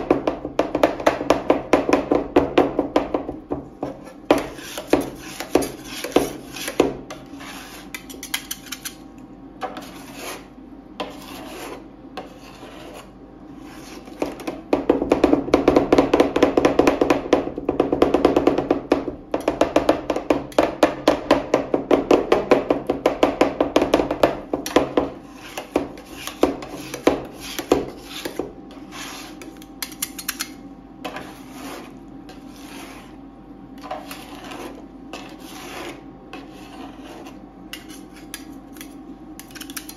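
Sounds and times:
steady low hum: 0:00.0 - 0:39.9
metal spatulas chopping on steel: 0:37.7 - 0:39.9.

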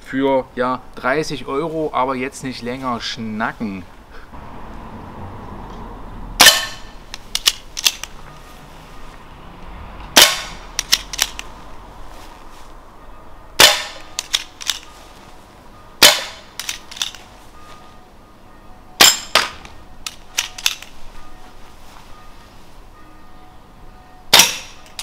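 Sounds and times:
air pistol shots: 0:10.2 - 0:11.3, 0:13.6 - 0:14.1, 0:16.0 - 0:16.8, 0:24.3 - 0:24.8.

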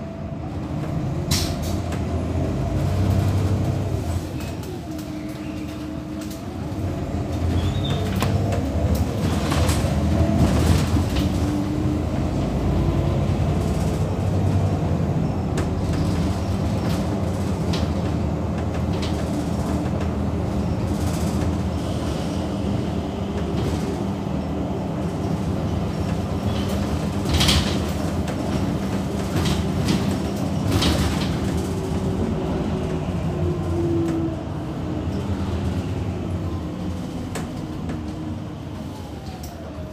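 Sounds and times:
bus drivetrain hum: 0:00.0 - 0:39.9
road rumble: 0:00.0 - 0:39.9.

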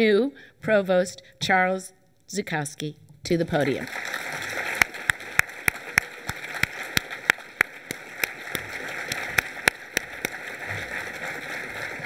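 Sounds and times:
audience applauding: 0:03.6 - 0:12.0
close hand claps: 0:03.7 - 0:12.0.

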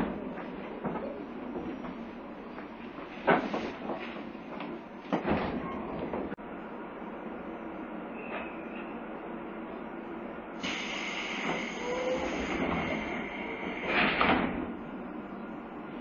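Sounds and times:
train doors hissing compressed air: 0:10.6 - 0:14.6.

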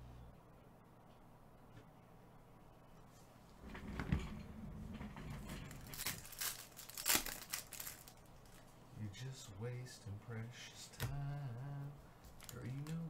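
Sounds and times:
foil pack crinkling: 0:05.7 - 0:08.6, 0:12.4 - 0:13.0.

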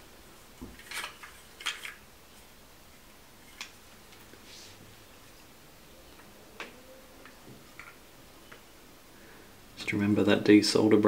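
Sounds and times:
soft hiss: 0:00.0 - 0:11.0
small tools clicking and rustling: 0:00.6 - 0:02.0, 0:06.6 - 0:08.6.

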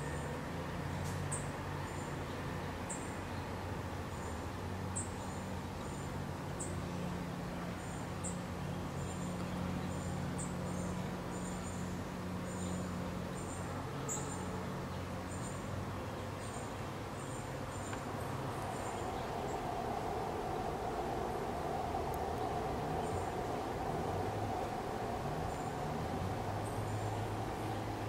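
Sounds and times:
steady low hum: 0:06.3 - 0:28.0.

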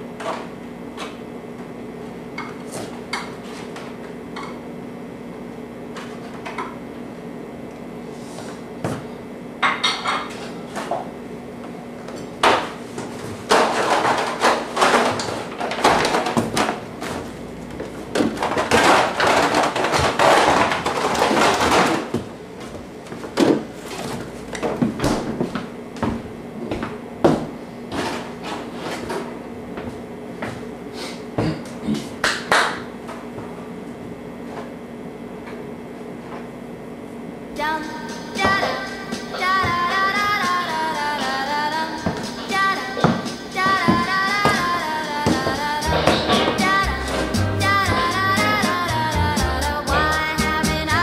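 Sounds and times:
household objects clattering: 0:13.5 - 0:17.2, 0:18.2 - 0:22.2
steady low hum: 0:32.8 - 0:51.0.

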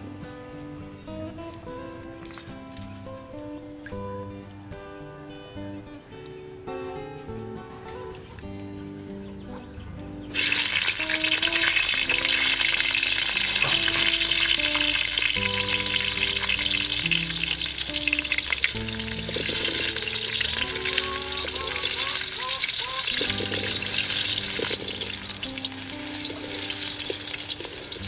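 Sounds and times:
eggplant sizzling in hot oil: 0:10.4 - 0:28.0.

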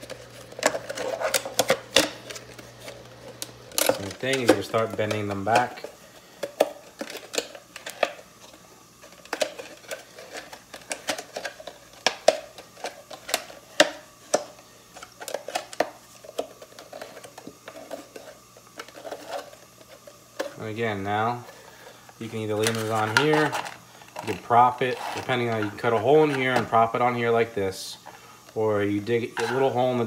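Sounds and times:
thin plastic crackling and snapping: 0:00.0 - 0:20.7.

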